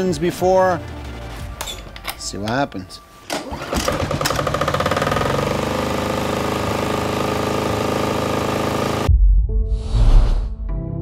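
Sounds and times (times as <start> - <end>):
recoil starter pull: 3.3 - 9.1
diesel engine running: 3.4 - 9.1.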